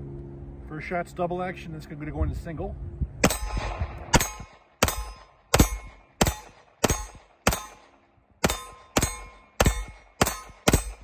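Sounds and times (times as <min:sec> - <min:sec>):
pistol shots with echo: 0:03.2 - 0:11.0.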